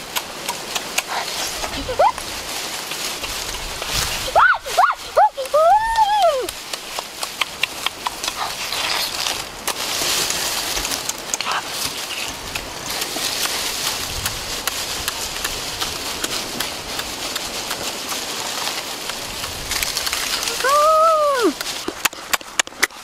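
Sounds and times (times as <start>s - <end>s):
wet chewing and lip-smacking: 0.0s - 2.3s, 6.4s - 9.9s, 10.7s - 20.6s
meat tearing: 6.7s - 10.3s.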